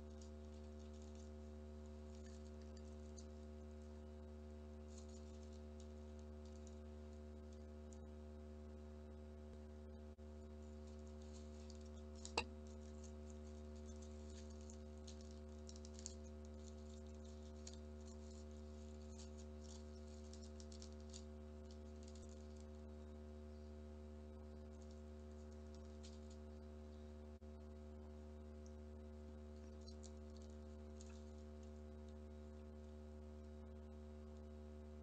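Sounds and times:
steady low hum: 0.0s - 35.0s
paper crinkling and rustling: 10.7s - 22.7s.

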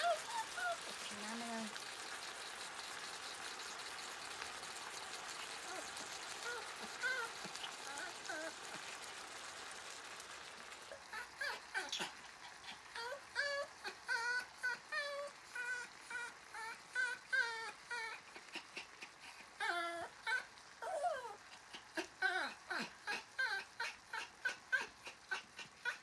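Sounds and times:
dog whimpering: 0.0s - 1.8s, 5.5s - 9.0s, 10.9s - 26.0s.

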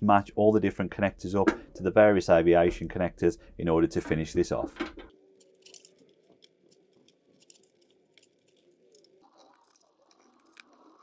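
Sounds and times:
connectors clicking: 4.8s - 11.0s
cables rustling: 5.1s - 11.0s.

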